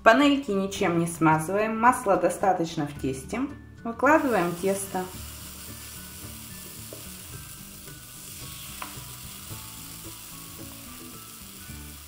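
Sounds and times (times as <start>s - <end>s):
faint background music: 0.0s - 12.0s
batter sizzling in waffle maker: 4.2s - 12.0s.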